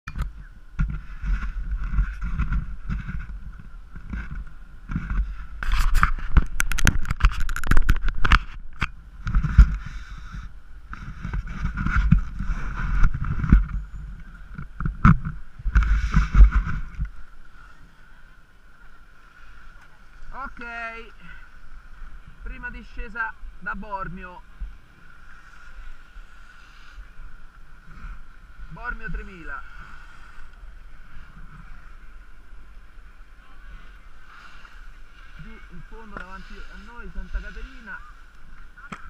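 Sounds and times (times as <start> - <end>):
wind buffeting microphone: 0.1 - 18.3
skis and poles clicking on snow: 0.8 - 17.8, 33.4 - 39.0.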